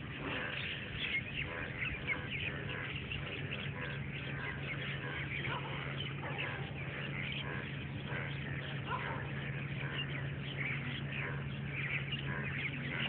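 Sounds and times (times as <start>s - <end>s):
birds chirping in chorus: 0.0s - 13.0s
steady low hum: 0.0s - 13.0s.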